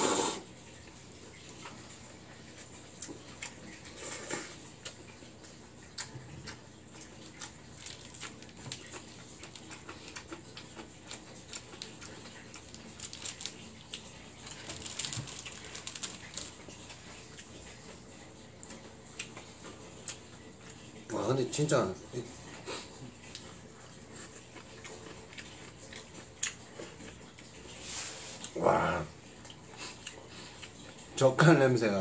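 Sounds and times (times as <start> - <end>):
person slurping noodles: 0.0 - 0.5, 4.0 - 4.6
chewing clicks: 4.8 - 17.8, 18.6 - 20.9, 24.2 - 27.5, 29.4 - 31.1.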